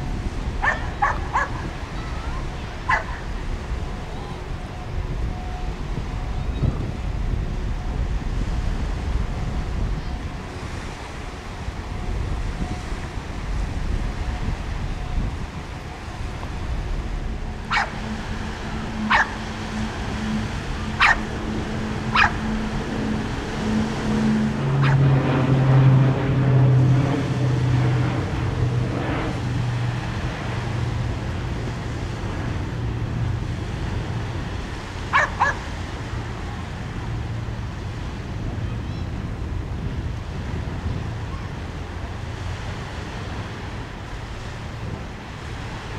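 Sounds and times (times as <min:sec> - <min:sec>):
steady low hum: 0:00.0 - 0:45.9
wind: 0:00.0 - 0:45.9
sharp animal calls: 0:17.7 - 0:18.0, 0:19.0 - 0:19.4, 0:21.0 - 0:21.3, 0:22.1 - 0:22.6, 0:35.1 - 0:35.6.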